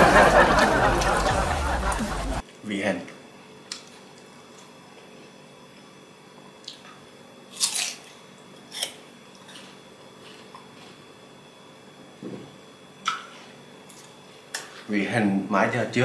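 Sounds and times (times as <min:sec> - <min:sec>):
chewing crunches: 0:07.6 - 0:11.0.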